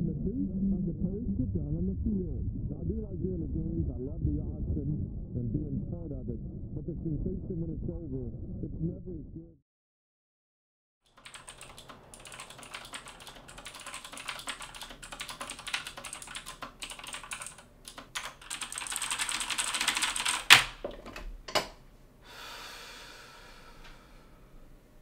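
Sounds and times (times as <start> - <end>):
fast typing on a keyboard: 11.1 - 20.8.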